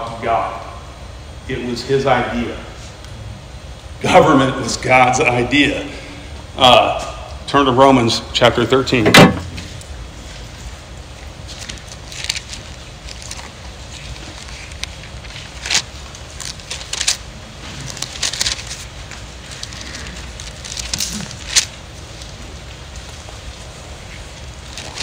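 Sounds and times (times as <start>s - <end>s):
steady low hum: 0.0s - 25.0s
book pages turning: 11.4s - 25.0s.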